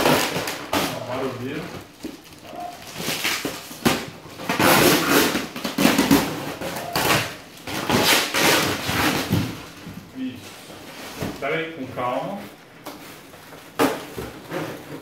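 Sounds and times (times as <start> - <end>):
packing tape ripping: 0.0 - 9.6
plastic wrap rustling: 0.0 - 15.0.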